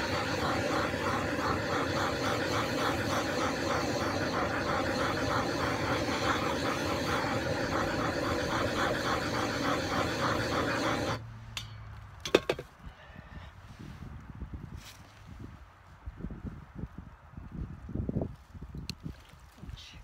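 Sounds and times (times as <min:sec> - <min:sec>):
torch flame hissing: 0:00.0 - 0:11.2.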